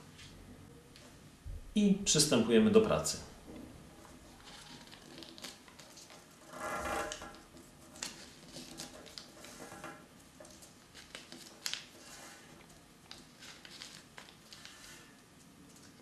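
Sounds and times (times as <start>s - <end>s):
paper rustling and crackling: 4.0s - 16.0s.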